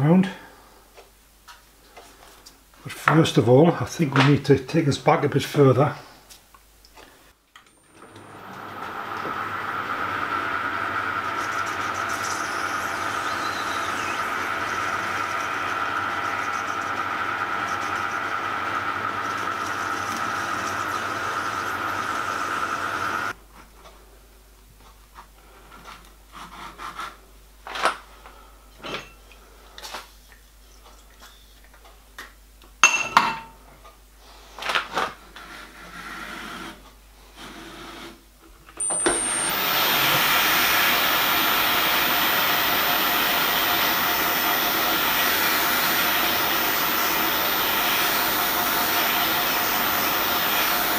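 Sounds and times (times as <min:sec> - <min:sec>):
metal lathe running: 0:08.0 - 0:23.4, 0:38.8 - 0:50.9.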